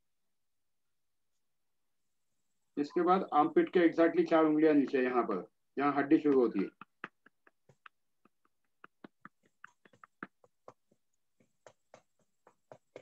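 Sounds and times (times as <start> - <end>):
fingertips tapping through shirt: 6.3 - 13.0.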